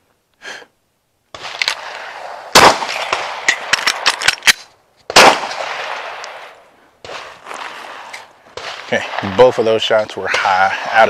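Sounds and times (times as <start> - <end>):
pistol shots with echo: 1.4 - 4.4, 5.1 - 7.3
metallic clicks of magazine reload: 3.5 - 4.7.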